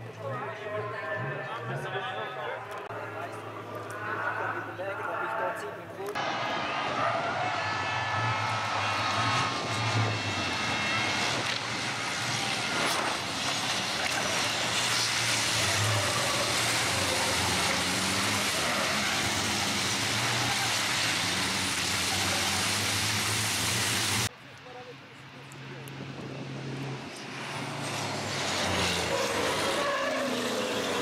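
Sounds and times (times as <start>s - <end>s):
racing trucks passing at speed: 6.0s - 24.3s, 25.2s - 31.0s.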